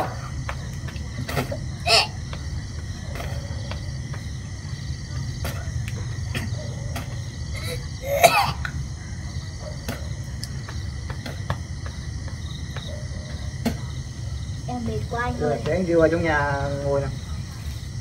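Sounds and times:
night insects chirring: 0.0s - 18.0s
loud cough-like sound: 1.8s - 2.2s, 7.6s - 8.7s.

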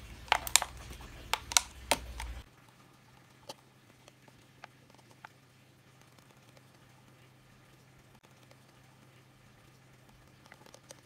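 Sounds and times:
plastic cup clicks and crackles: 0.2s - 2.4s.

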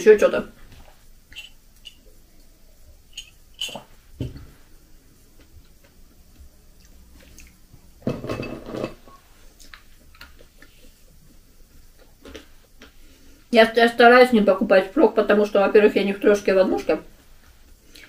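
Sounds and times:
crockery clinking: 3.1s - 3.9s, 8.1s - 9.1s.

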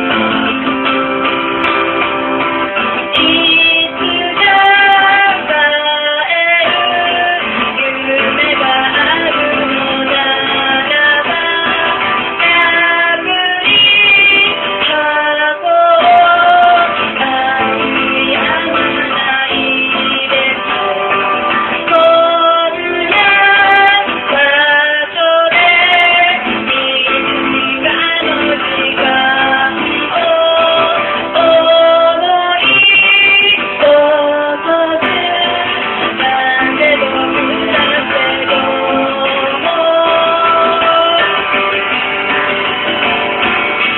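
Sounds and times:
acoustic guitar strumming: 0.0s - 43.9s
woman singing: 3.0s - 42.0s.

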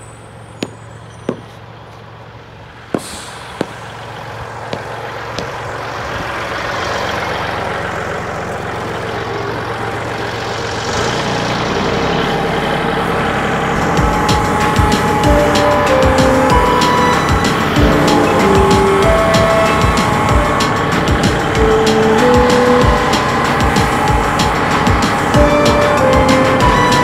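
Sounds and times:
tractor engine running: 0.0s - 27.0s
sharp knocks: 0.6s - 1.6s, 3.0s - 3.9s, 4.7s - 5.6s.

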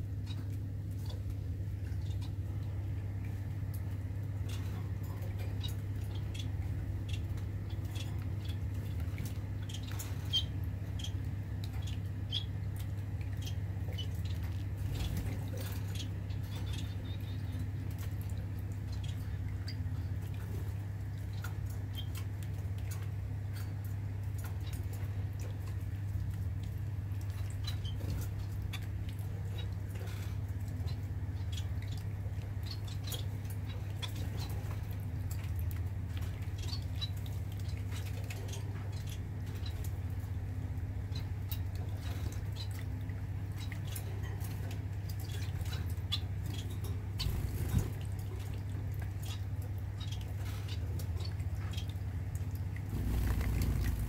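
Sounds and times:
finches chirping: 4.2s - 22.4s, 27.3s - 42.7s, 43.3s - 48.5s, 49.1s - 52.3s, 52.9s - 54.0s.

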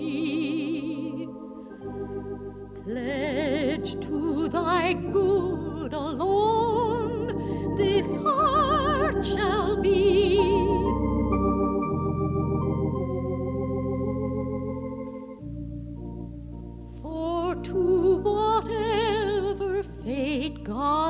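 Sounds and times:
soprano singing slow love song: 0.0s - 11.4s, 16.9s - 21.0s
organ chords: 0.0s - 21.0s.

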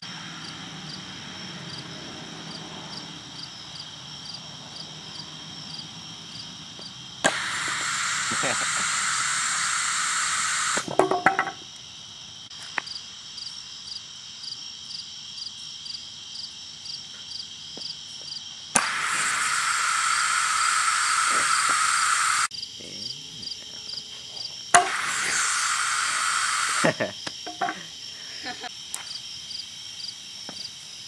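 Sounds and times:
crickets chirping: 0.0s - 31.0s
valve clicks: 7.2s - 11.0s, 18.8s - 22.5s, 24.8s - 27.6s
compressed air hissing: 7.2s - 11.5s, 18.7s - 22.5s, 24.7s - 28.6s.

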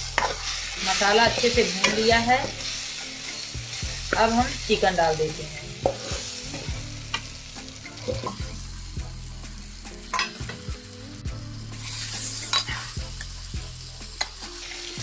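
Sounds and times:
metal ladle scraping a pan: 0.0s - 4.3s, 5.7s - 6.7s, 11.7s - 12.9s
food sizzling in a pan: 0.0s - 15.0s.

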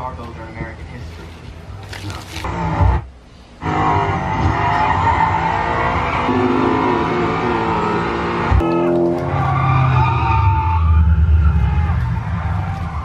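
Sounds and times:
race car engines running: 0.1s - 13.0s
tyres skidding: 3.6s - 13.0s.

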